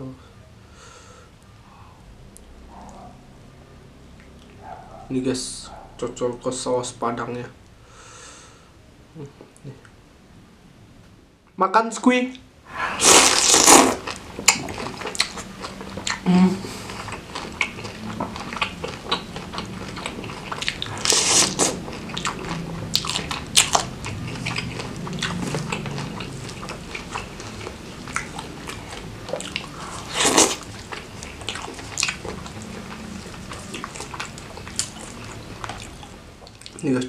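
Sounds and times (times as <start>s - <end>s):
loud bites: 13.0s - 15.4s
wet chewing and smacks: 13.0s - 36.9s.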